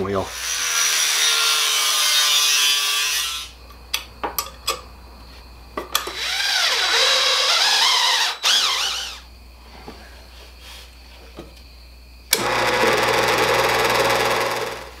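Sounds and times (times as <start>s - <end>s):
angle grinder cutting steel: 6.0s - 9.2s, 12.3s - 15.0s
power tool whine: 6.0s - 9.2s, 12.3s - 15.0s.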